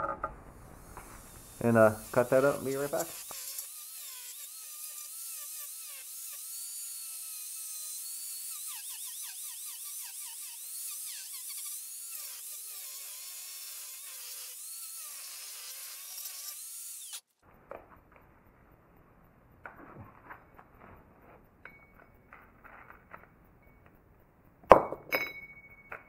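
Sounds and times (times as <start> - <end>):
angle grinder whine: 0.0 - 17.2.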